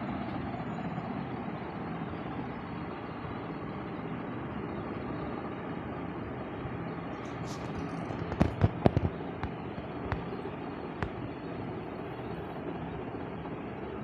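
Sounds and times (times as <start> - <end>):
sharp pops: 8.2 - 10.4, 11.0 - 11.2.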